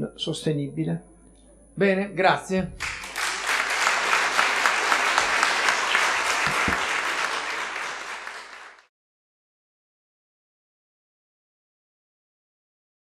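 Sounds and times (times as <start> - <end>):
audience applauding: 2.8 - 8.9.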